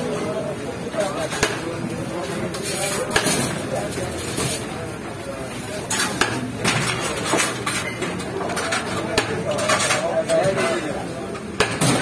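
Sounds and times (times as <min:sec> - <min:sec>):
metal utensils clinking on pots: 0:05.7 - 0:12.0.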